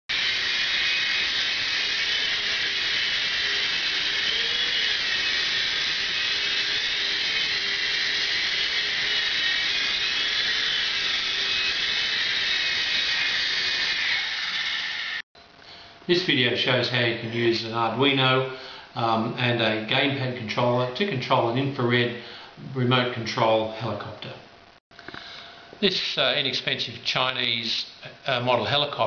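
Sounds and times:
toy helicopter motor whine: 0:00.1 - 0:15.2.

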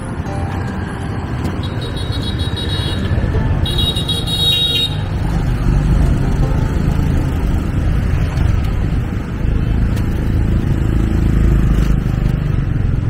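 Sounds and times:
high-pitched horn beeps: 0:01.6 - 0:05.1
wind and motorbike engine rumble: 0:05.0 - 0:13.0.

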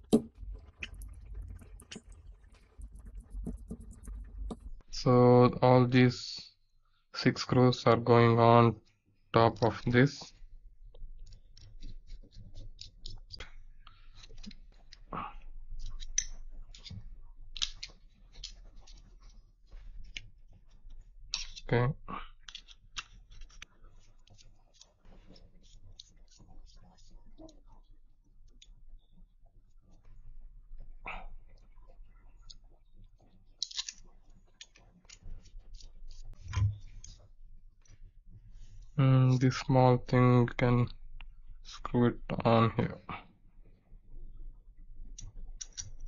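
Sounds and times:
small parts clicking and clattering: 0:11.0 - 0:27.6, 0:33.6 - 0:37.2, 0:45.6 - 0:46.0
plates and screws clicking: 0:17.6 - 0:19.0, 0:21.3 - 0:21.6, 0:22.4 - 0:23.6, 0:33.6 - 0:34.0, 0:45.6 - 0:46.0.

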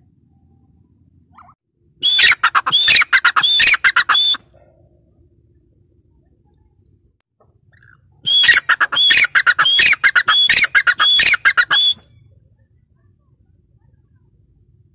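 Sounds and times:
francolin calling loudly: 0:01.4 - 0:04.4, 0:07.8 - 0:12.0.

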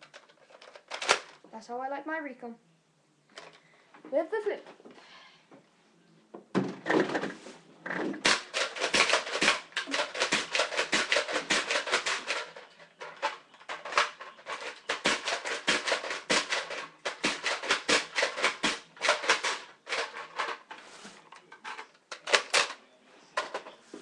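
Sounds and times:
hard plastic clacks: 0:06.4 - 0:24.0
toy blaster priming and firing: 0:13.2 - 0:19.6.

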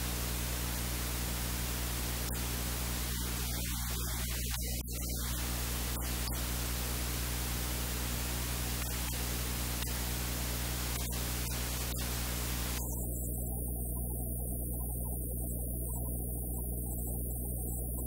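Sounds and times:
steady hiss: 0:00.0 - 0:13.2.

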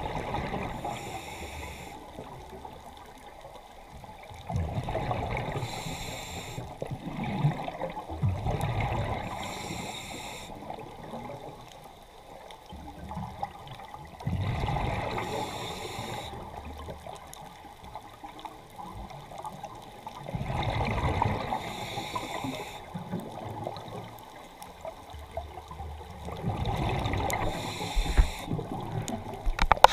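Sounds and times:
regulator bubbles gurgling: 0:00.0 - 0:03.4, 0:04.0 - 0:11.8, 0:12.7 - 0:29.9
regulator hiss: 0:00.7 - 0:02.0, 0:05.6 - 0:06.8, 0:09.3 - 0:10.6, 0:15.2 - 0:16.4, 0:21.5 - 0:22.9, 0:27.4 - 0:28.6.

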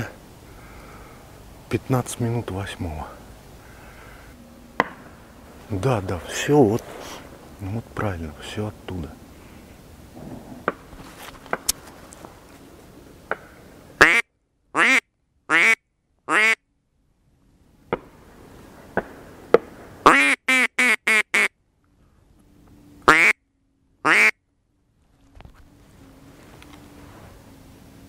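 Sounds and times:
duck quacking: 0:14.0 - 0:14.2, 0:14.8 - 0:16.6, 0:20.1 - 0:21.5, 0:23.1 - 0:23.4, 0:24.0 - 0:24.4.

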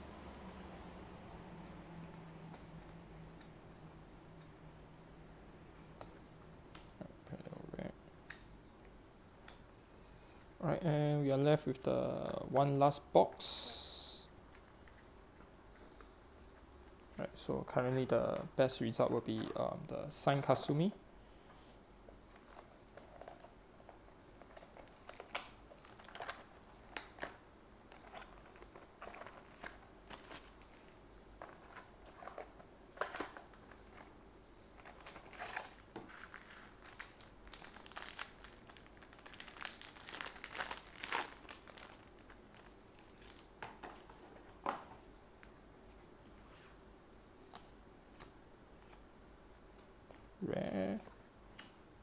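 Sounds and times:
plastic wrapping crinkling and tearing: 0:22.3 - 0:23.5, 0:24.2 - 0:34.1, 0:34.7 - 0:43.5.

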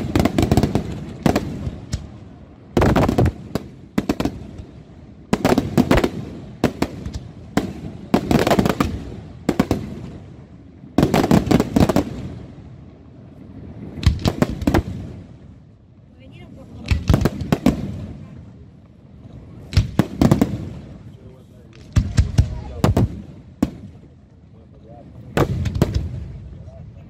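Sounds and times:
rapid firework cracks: 0:00.0 - 0:02.1, 0:02.8 - 0:04.7, 0:05.3 - 0:10.2, 0:11.0 - 0:12.4, 0:14.0 - 0:15.2, 0:16.8 - 0:18.2, 0:19.7 - 0:20.8, 0:21.7 - 0:23.9, 0:25.4 - 0:26.2.

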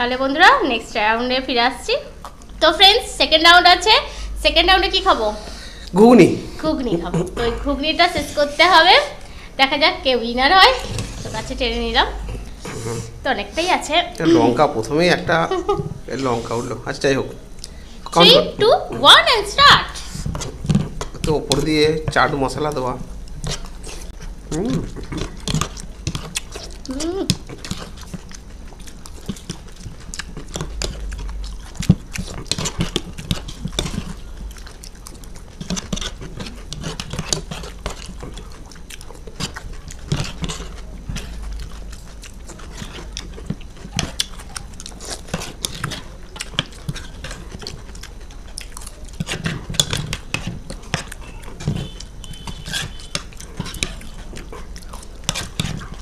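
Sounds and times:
people chewing: 0:02.0 - 0:02.8, 0:03.7 - 0:56.0
spoons scraping plates: 0:49.2 - 0:54.1.

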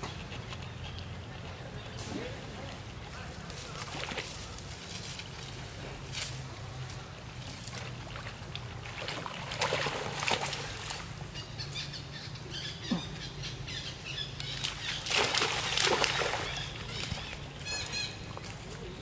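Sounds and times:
water splashing and sloshing: 0:02.0 - 0:11.5, 0:14.4 - 0:19.0.

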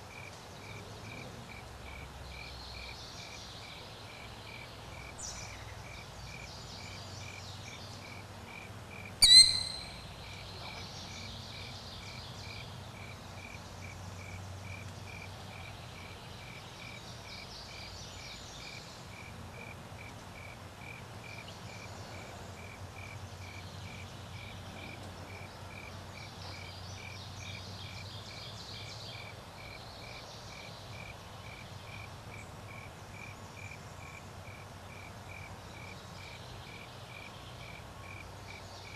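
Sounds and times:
crickets chirping: 0:00.1 - 0:38.9
sharp high bird call: 0:09.2 - 0:10.1
faint bird chirps: 0:09.2 - 0:11.7.

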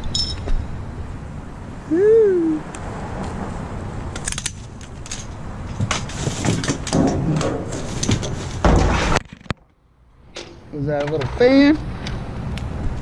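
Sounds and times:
trash rustling: 0:04.9 - 0:09.6
knock and scrape: 0:05.8 - 0:09.5.

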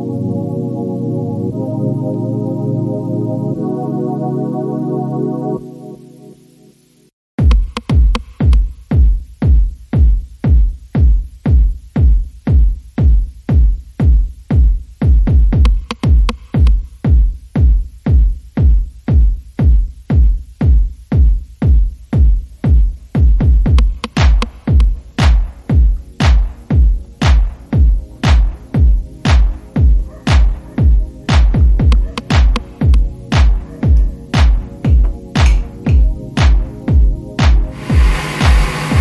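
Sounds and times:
electronic music with drum-machine beat: 0:00.0 - 0:06.6, 0:07.4 - 0:39.0.

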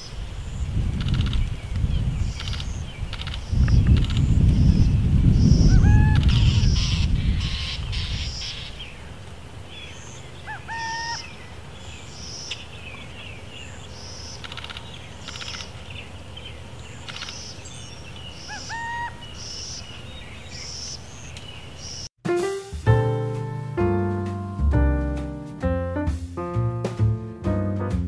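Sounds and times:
small birds chirping and trilling: 0:00.0 - 0:22.1
owl calling: 0:05.4 - 0:09.0, 0:09.7 - 0:11.5, 0:16.9 - 0:22.1.

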